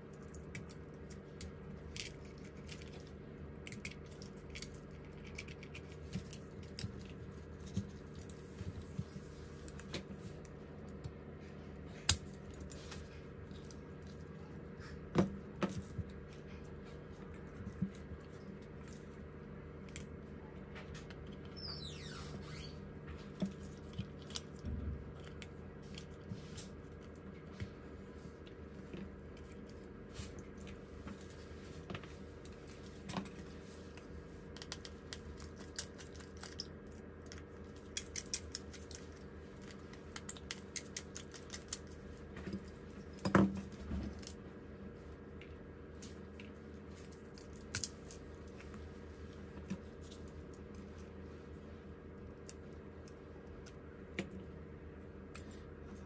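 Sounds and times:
steady low hum: 0:00.0 - 0:56.0
short falling squeak: 0:21.5 - 0:22.8.

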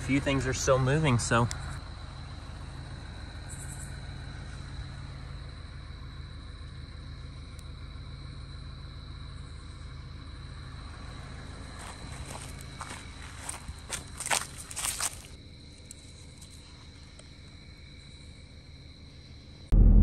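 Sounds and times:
vehicle engine idling: 0:00.0 - 0:15.5
high-pitched insect trill: 0:00.0 - 0:19.7.

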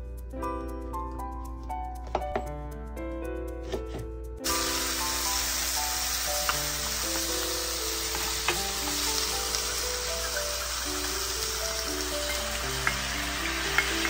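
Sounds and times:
light background music: 0:00.0 - 0:14.0
chicken sizzling in frying pan: 0:04.4 - 0:14.0.

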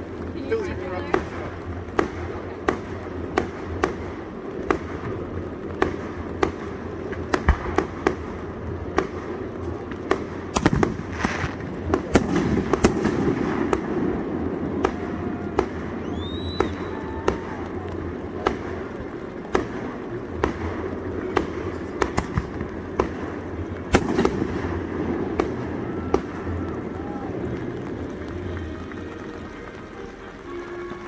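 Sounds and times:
fireworks bangs: 0:00.0 - 0:31.0
fireworks crackling: 0:00.0 - 0:31.0
rising firework whistle: 0:11.1 - 0:18.5, 0:25.2 - 0:31.0.

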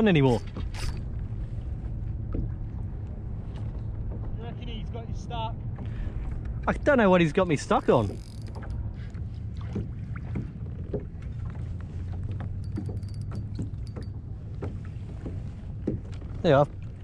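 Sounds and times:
fishing gear clicks and knocks: 0:00.0 - 0:01.2, 0:07.6 - 0:09.2, 0:10.7 - 0:17.0
wind rumble on microphone: 0:00.0 - 0:17.0.

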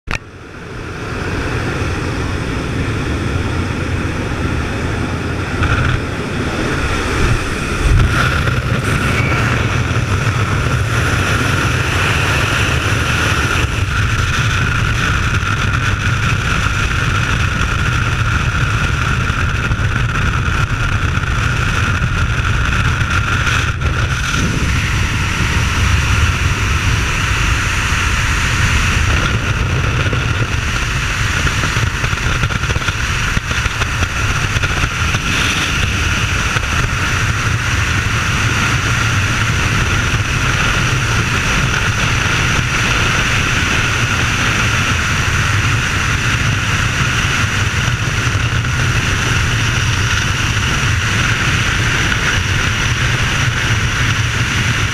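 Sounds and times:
propeller engines: 0:00.0 - 0:54.9
wind blasting past camera: 0:00.1 - 0:54.9.

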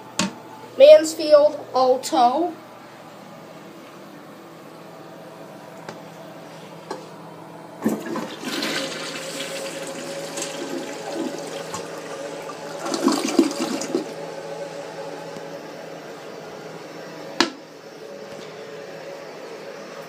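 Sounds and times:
toilet flushing: 0:07.8 - 0:15.2.

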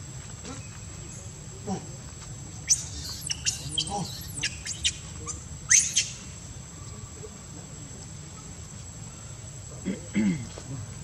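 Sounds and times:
high-pitched squeaky chirps: 0:02.7 - 0:06.3.

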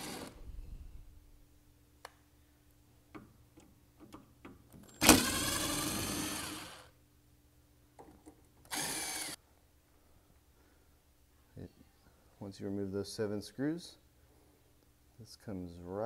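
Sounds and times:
power screwdriver motor: 0:00.0 - 0:00.3, 0:05.0 - 0:06.9, 0:08.7 - 0:09.4.

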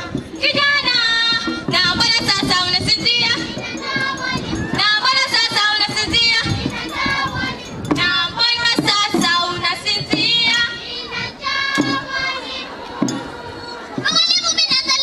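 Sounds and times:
sharp drum beats: 0:00.0 - 0:15.0
children singing in chorus: 0:03.1 - 0:14.1.

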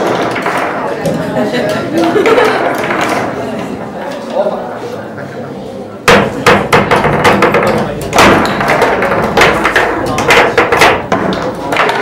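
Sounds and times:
table football knocks and clacks: 0:00.0 - 0:03.4, 0:06.1 - 0:12.0.

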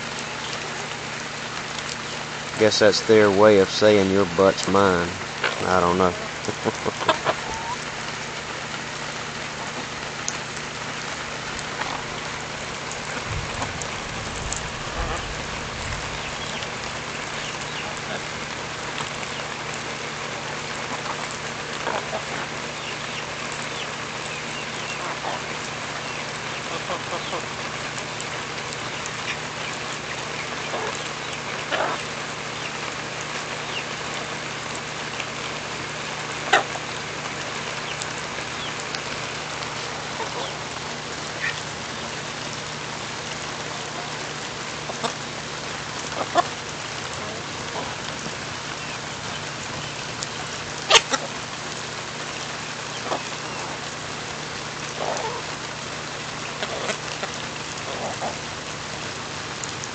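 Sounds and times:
steady rain falling: 0:00.0 - 0:59.9
chickens clucking: 0:02.7 - 0:07.9, 0:11.6 - 0:19.8, 0:20.4 - 0:34.2, 0:36.4 - 0:42.3, 0:43.8 - 0:51.5, 0:52.3 - 0:54.0, 0:54.8 - 0:55.6, 0:56.3 - 0:58.5
chickens pecking taps: 0:04.6 - 0:07.9.

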